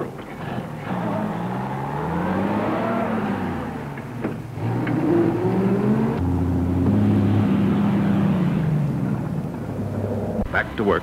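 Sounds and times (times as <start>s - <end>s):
engine revving: 0.3s - 10.5s.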